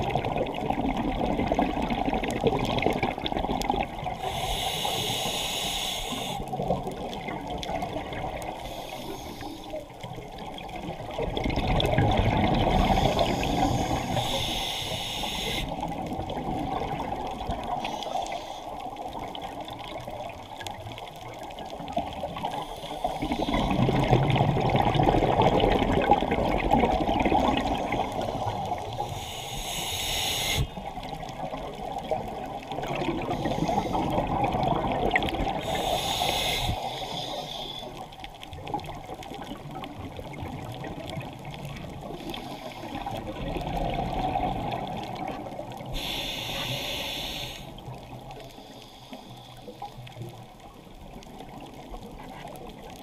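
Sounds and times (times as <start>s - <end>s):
exhaled bubbles rushing: 0.0s - 4.2s, 10.3s - 14.2s, 15.7s - 17.8s, 23.1s - 29.0s, 30.8s - 35.8s, 42.9s - 45.9s
regulator inhale hiss: 4.1s - 6.6s, 8.4s - 9.9s, 12.7s - 15.9s, 17.6s - 19.0s, 22.4s - 23.8s, 27.7s - 31.0s, 33.2s - 34.3s, 35.5s - 38.1s, 42.0s - 43.2s, 45.8s - 50.2s.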